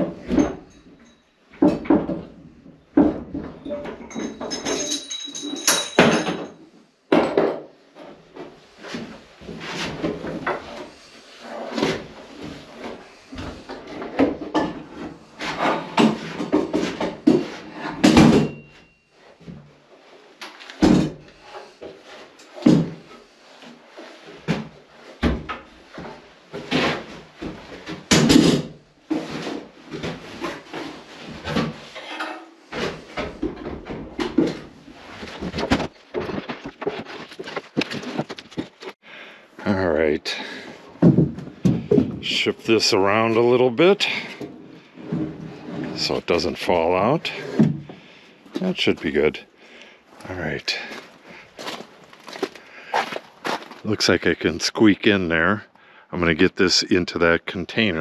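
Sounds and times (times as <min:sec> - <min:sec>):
heavy objects knocking and scraping: 0:11.7 - 0:18.9, 0:24.4 - 0:39.0, 0:40.2 - 0:49.4.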